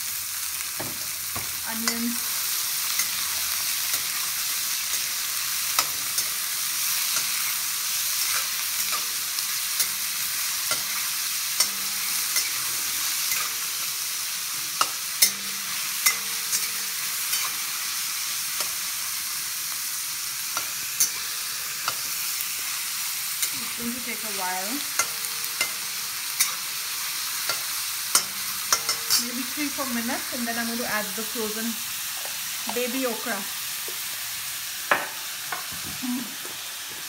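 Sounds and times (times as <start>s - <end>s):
onions sizzling in oil: 0.0s - 37.0s
metal spatula scraping a wok: 14.6s - 17.9s, 24.9s - 29.9s.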